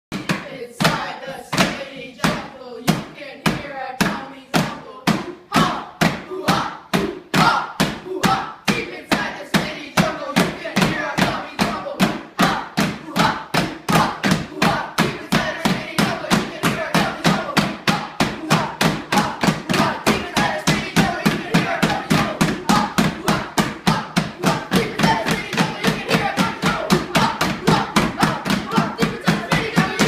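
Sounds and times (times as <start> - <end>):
children singing: 0.1 - 30.0
hands slapping wooden stools: 0.1 - 30.0.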